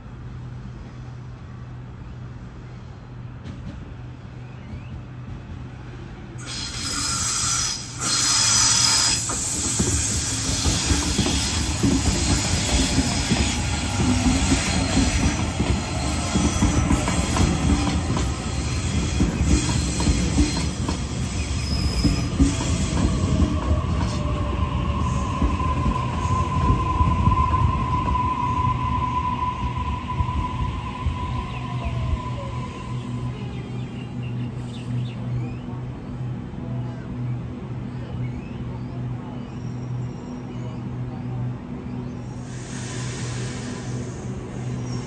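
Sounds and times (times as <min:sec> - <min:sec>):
train wheel and rail noise: 0:00.0 - 0:45.0
train whine climbing in pitch: 0:06.4 - 0:34.7.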